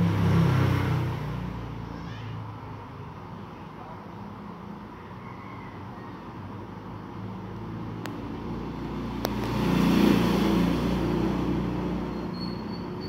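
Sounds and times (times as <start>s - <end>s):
vehicle engine passing by: 0.0s - 2.9s, 5.8s - 13.0s.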